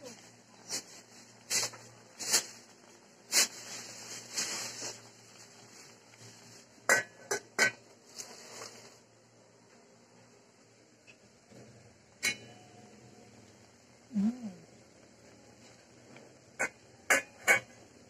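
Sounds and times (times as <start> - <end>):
sizzling and spitting: 0.2 - 9.0
metal pot lid clanking: 12.2 - 12.9, 16.6 - 17.8.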